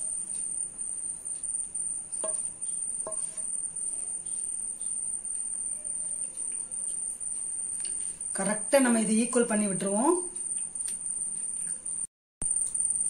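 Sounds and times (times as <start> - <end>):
cricket chirping: 0.0 - 13.0
ladle knocking against pan: 2.2 - 3.5.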